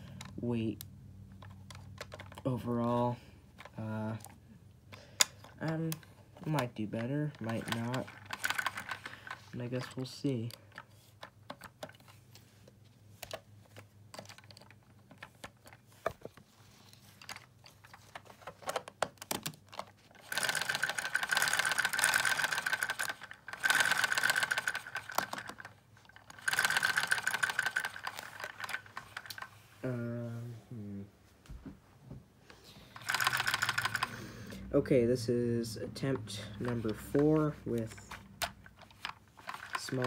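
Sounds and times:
plastic bricks clicking: 4.9 - 12.2, 17.2 - 29.5, 33.0 - 34.2, 36.6 - 40.0
fast mechanical ticking: 5.7 - 9.4, 20.2 - 25.7, 26.3 - 29.4, 33.0 - 34.6
hum-like voice: 29.8 - 31.2.

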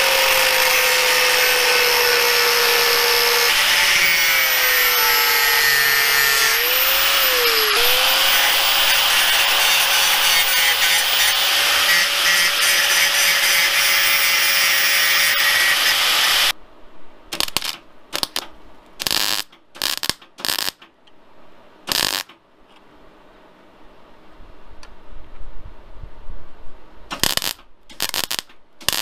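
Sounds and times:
angle grinder on steel: 0.0 - 16.5
arc welding bursts: 0.0 - 16.5, 17.4 - 20.8, 21.9 - 22.4, 27.2 - 29.0.

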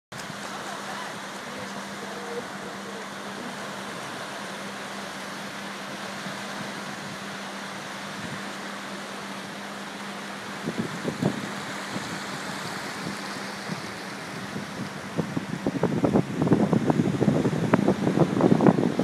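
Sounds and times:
waves washing on sandy beach: 0.1 - 19.0
wind thumps on microphone: 10.6 - 19.0.

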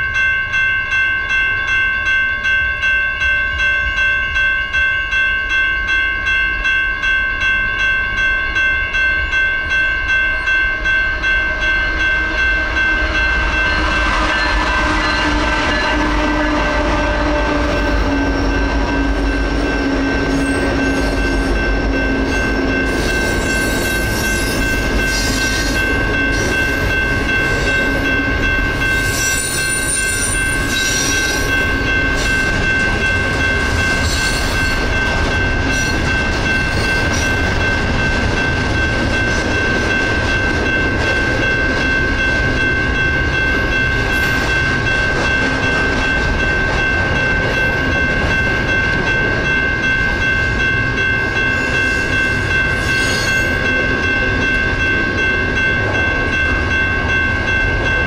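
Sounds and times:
railroad crossing bells ringing: 0.0 - 58.0
diesel locomotives rumbling: 10.8 - 58.0
train wheel clatter: 13.4 - 56.0.

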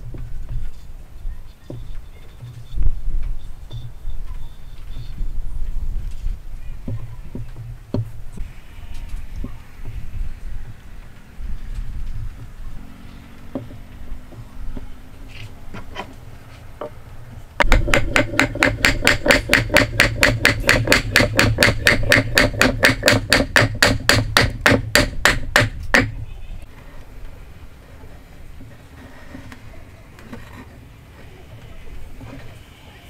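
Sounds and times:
wooden rod tapping wood: 13.5 - 14.9, 17.6 - 26.2.

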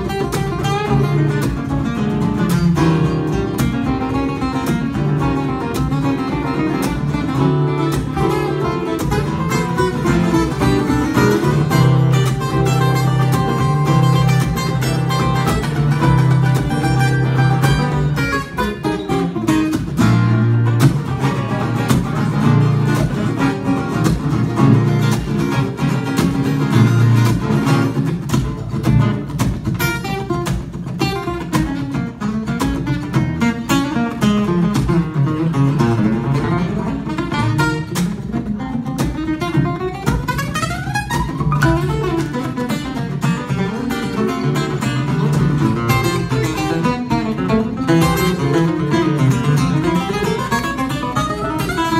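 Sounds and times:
acoustic guitar duet: 0.0 - 51.9.

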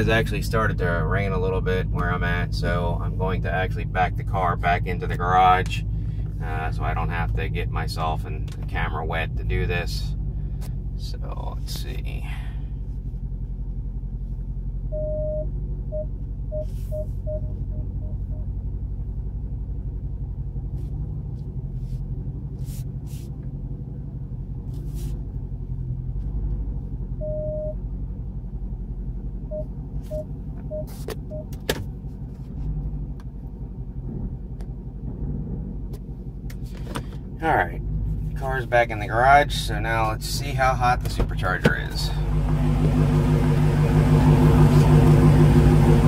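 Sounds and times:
car engine idling: 0.0 - 46.0
park-assist sensor beeps: 14.9 - 18.4, 27.2 - 27.8, 29.5 - 31.5.

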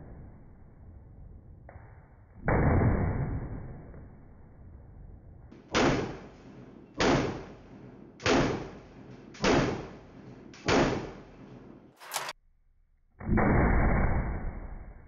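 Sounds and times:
pistol shots with echo: 5.7 - 11.4.

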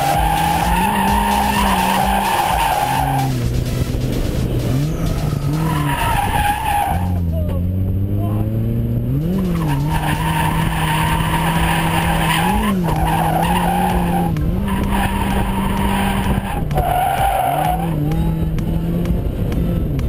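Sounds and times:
tyre squeal: 0.0 - 3.3, 4.8 - 7.3, 9.4 - 18.1
car engine at high revs: 0.0 - 20.0.

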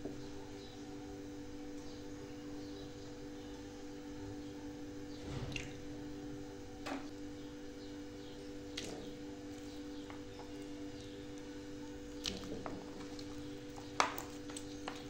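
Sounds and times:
steady hum: 0.0 - 15.0
soft splash: 5.3 - 5.8.

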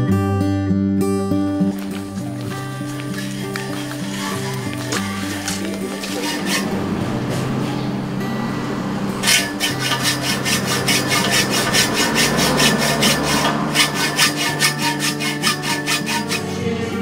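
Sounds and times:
hacksaw cutting metal pipe: 1.7 - 7.5, 9.2 - 16.6.

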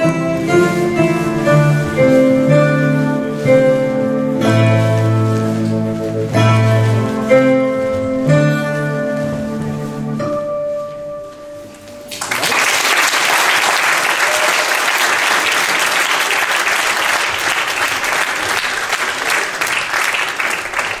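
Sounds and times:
live folk dance music: 0.0 - 10.6
audience applause: 12.1 - 21.0.

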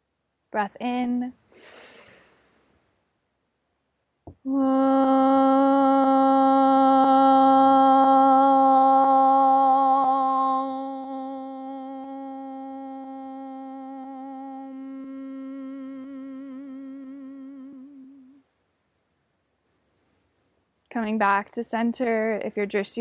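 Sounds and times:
woman chanting om: 4.5 - 18.4.

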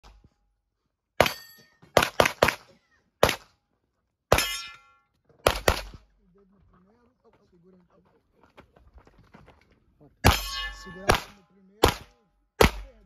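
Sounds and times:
metallic ring: 1.2 - 1.8, 4.4 - 5.1, 10.3 - 11.2
handgun shots: 5.4 - 6.0, 10.3 - 13.0.

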